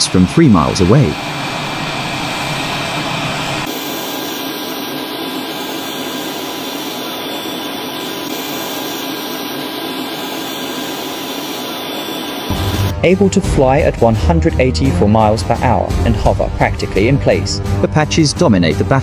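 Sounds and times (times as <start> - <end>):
helicopter turbine engines running: 0.0 - 13.4.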